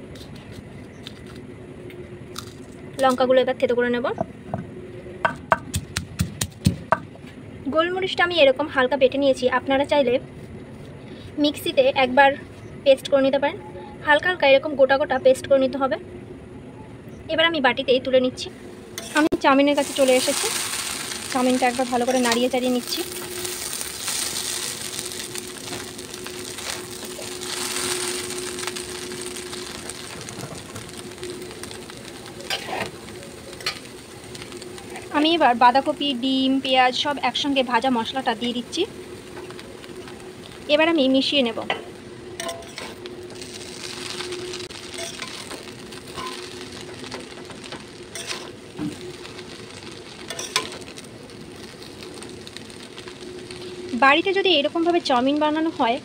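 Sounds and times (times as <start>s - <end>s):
faint steady hum: 0.0s - 56.0s
noodles sizzling in hot oil: 18.4s - 56.0s
metal spatula scraping a wok: 19.0s - 30.2s, 32.4s - 33.0s, 42.4s - 48.5s, 50.3s - 50.8s
metal spatula scraping a pan: 32.5s - 33.0s, 44.8s - 47.4s, 48.1s - 48.5s, 50.3s - 50.8s.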